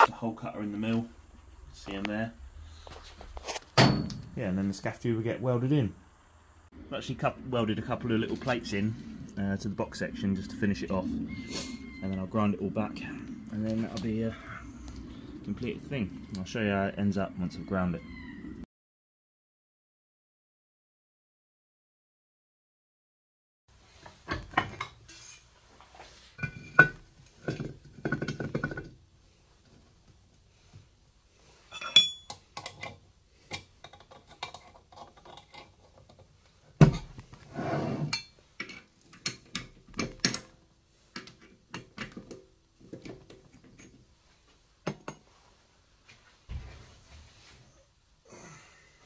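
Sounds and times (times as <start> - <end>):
ringing metal clinks: 31.7 - 32.5.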